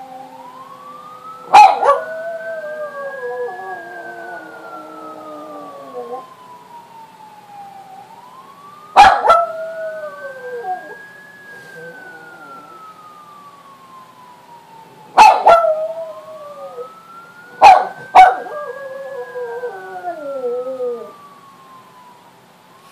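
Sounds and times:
siren wailing: 0:00.0 - 0:22.9
small dog yipping and howling: 0:01.5 - 0:02.1, 0:15.2 - 0:15.9, 0:17.6 - 0:18.7.

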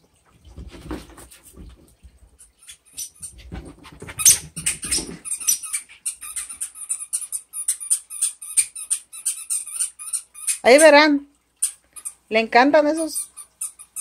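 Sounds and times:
dog paws thudding on carpet: 0:03.2 - 0:05.4
squeaky dog toy squeaking: 0:04.2 - 0:11.0, 0:11.6 - 0:12.3, 0:13.0 - 0:14.0.

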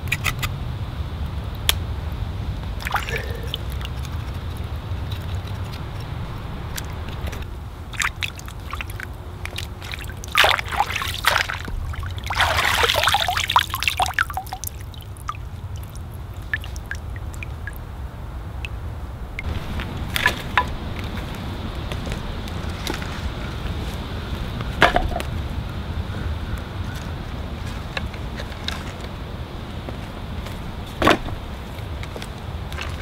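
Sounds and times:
water pouring and sloshing: 0:02.7 - 0:17.9, 0:18.6 - 0:21.4, 0:30.5 - 0:33.0.

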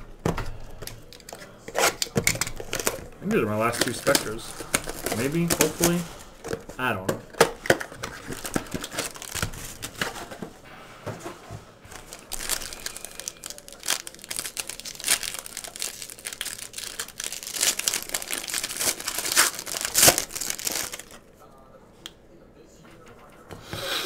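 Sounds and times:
foil wrapper crinkling and tearing: 0:00.9 - 0:06.7, 0:07.4 - 0:10.2, 0:11.9 - 0:21.2.

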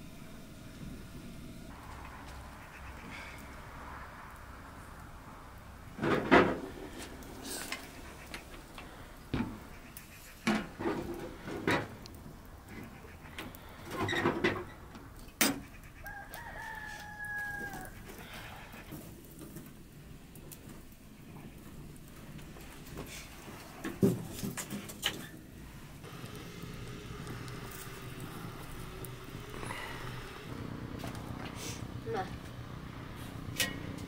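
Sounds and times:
metal pot and firewood clattering: 0:06.0 - 0:31.8, 0:33.4 - 0:34.0.

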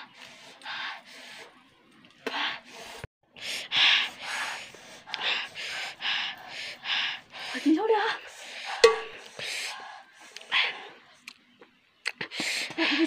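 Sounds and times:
woman panting and gasping: 0:02.2 - 0:11.0, 0:12.2 - 0:13.0.

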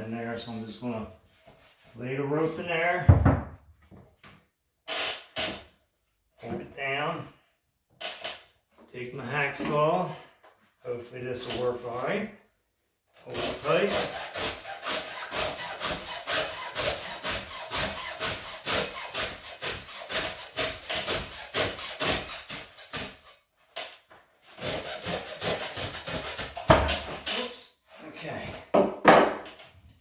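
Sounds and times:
hacksaw cutting rope: 0:13.3 - 0:27.6.

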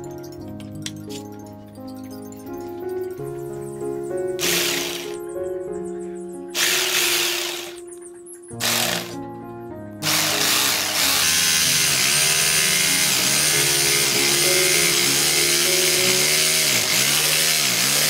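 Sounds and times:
jigsaw cutting wood: 0:04.4 - 0:05.2, 0:06.6 - 0:07.8, 0:08.6 - 0:09.2, 0:10.0 - 0:18.0.

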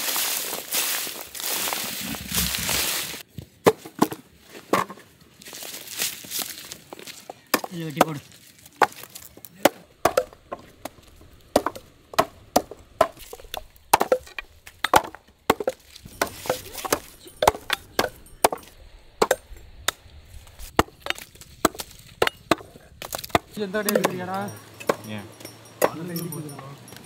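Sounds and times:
sickle chopping on wooden log: 0:07.5 - 0:08.2, 0:08.8 - 0:20.0, 0:20.7 - 0:25.0.

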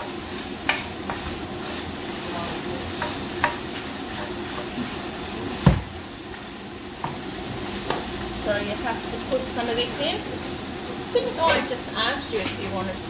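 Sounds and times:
meat sizzling in frying pans: 0:00.0 - 0:13.0
loud knock: 0:05.6 - 0:05.9.

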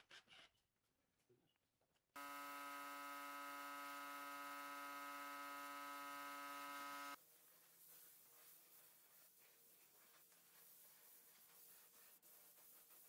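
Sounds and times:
spray gun buzzing hum: 0:02.2 - 0:07.2.

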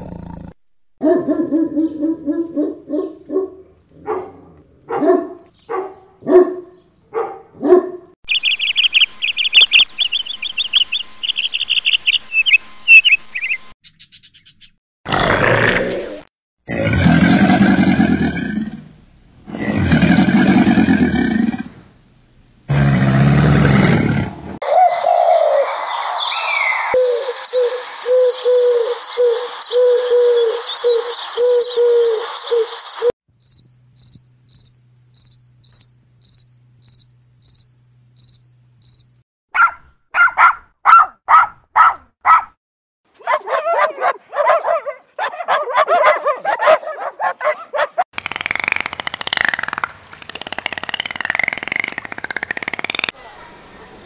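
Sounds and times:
animal growl: 0:00.0 - 0:00.6, 0:15.1 - 0:21.9, 0:22.7 - 0:24.6
crickets chirping: 0:27.0 - 0:39.2.

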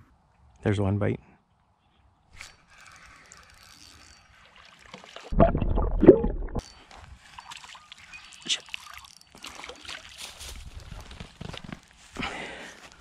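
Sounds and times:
rustling and scraping through reeds: 0:06.7 - 0:13.0.

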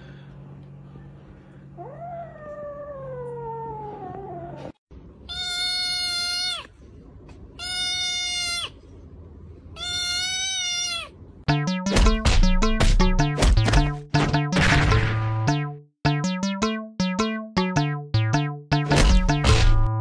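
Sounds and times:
cat meowing: 0:05.3 - 0:06.7, 0:07.6 - 0:08.8, 0:09.8 - 0:11.2.

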